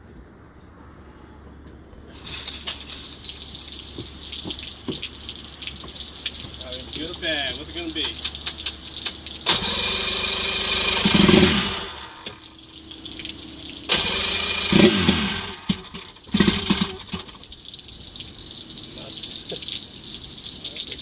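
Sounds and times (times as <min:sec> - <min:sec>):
electric starter cranking outboard: 0:09.4 - 0:12.4, 0:13.9 - 0:17.4.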